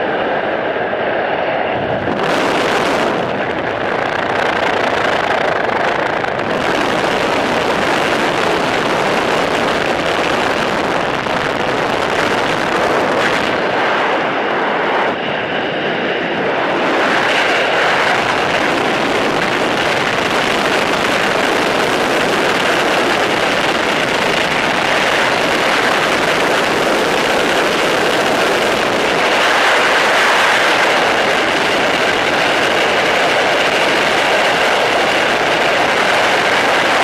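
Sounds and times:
aircraft engine noise: 0.0s - 37.0s
rushing wind: 0.0s - 37.0s
wind buffeting microphone: 0.0s - 37.0s.

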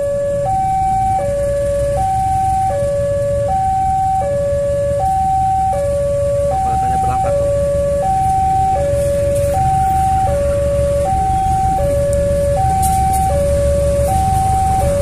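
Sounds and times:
two-tone crossing alarm: 0.0s - 15.0s
train rumbling: 6.6s - 15.0s.

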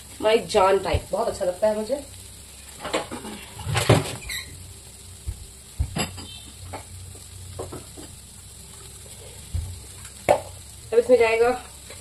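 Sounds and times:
chickpeas sizzling in oil: 0.0s - 12.0s.

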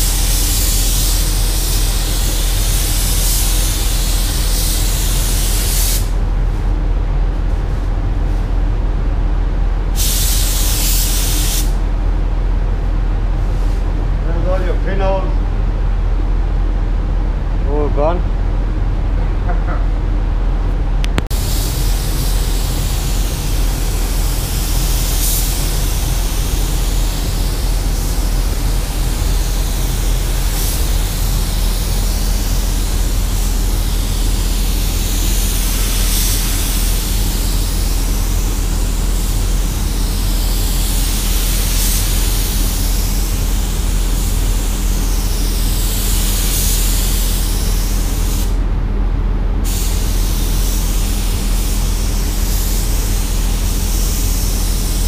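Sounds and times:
spray gun hissing: 0.0s - 6.2s, 10.0s - 11.8s, 21.4s - 48.6s, 49.6s - 55.0s
steady low hum: 0.0s - 55.0s.

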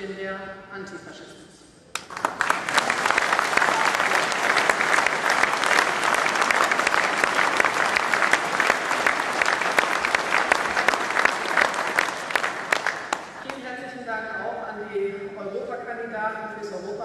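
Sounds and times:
large audience applauding: 1.9s - 13.6s.

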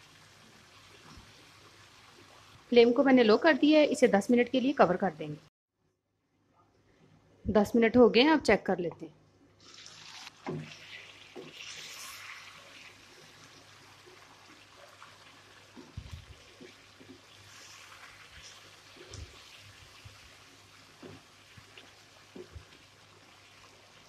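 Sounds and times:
food sizzling in a wok: 0.0s - 2.9s, 9.6s - 24.0s.

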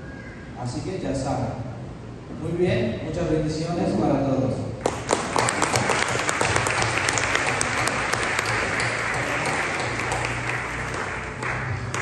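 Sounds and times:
congregation applauding: 4.8s - 12.0s.

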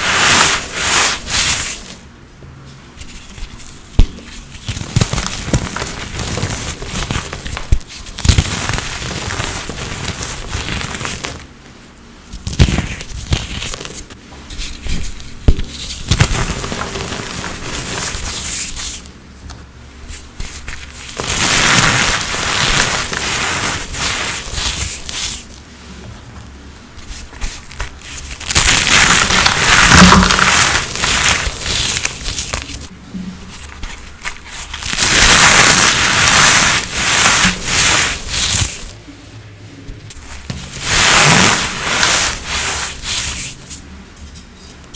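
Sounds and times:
crushing powder blocks: 4.6s - 11.5s, 15.4s - 19.0s, 20.4s - 25.5s, 27.1s - 32.9s, 33.7s - 39.0s, 40.3s - 43.6s.

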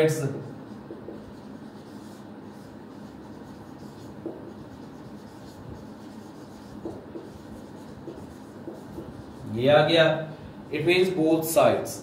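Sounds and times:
marker pen scratching on whiteboard: 0.6s - 9.6s.

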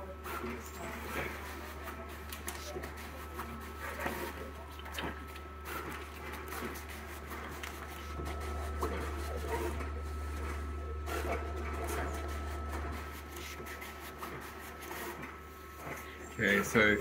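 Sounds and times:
machine hum: 0.0s - 17.0s
paper rustles: 1.2s - 5.1s.

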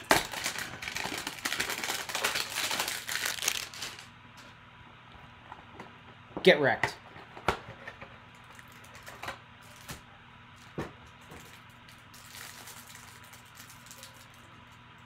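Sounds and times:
cellophane wrapper crinkling: 0.0s - 4.1s, 8.3s - 9.9s, 10.6s - 14.5s.

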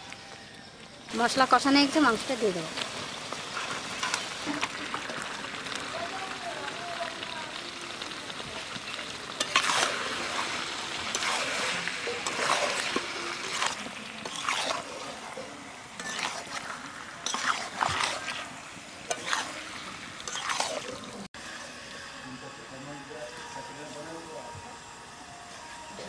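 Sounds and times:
meat sizzling: 0.0s - 26.0s
wooden spatula scraping pot: 9.4s - 21.2s.

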